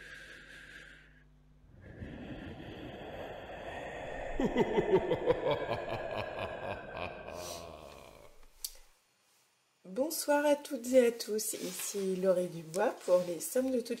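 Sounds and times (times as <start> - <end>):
noisy rumble: 1.5 - 8.6.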